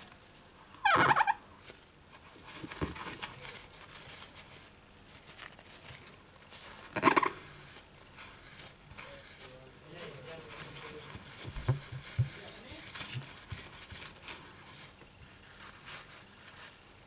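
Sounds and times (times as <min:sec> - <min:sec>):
tissue squeaking on screen: 0:00.8 - 0:01.4
tissue rubbing on screen: 0:02.2 - 0:17.0
soft knock: 0:11.5 - 0:12.4.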